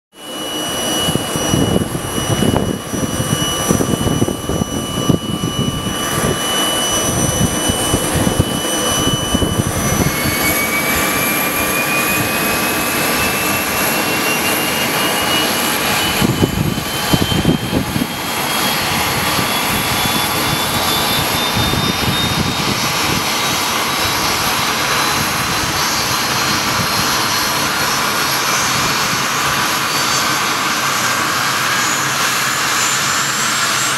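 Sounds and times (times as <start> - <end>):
jet engine whine rising: 0.2 - 33.9
steady high whine: 0.2 - 33.9.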